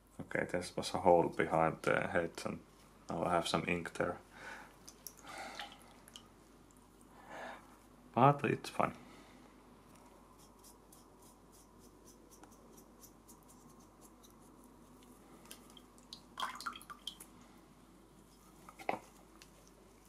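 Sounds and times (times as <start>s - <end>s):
paintbrush strokes: 9.8s - 15.7s.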